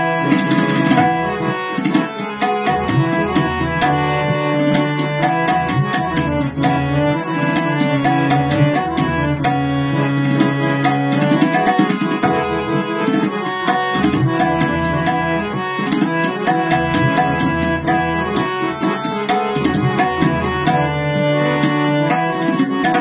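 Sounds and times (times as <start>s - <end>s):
drum rhythm: 0.0s - 23.0s
harmonium melody: 0.0s - 23.0s.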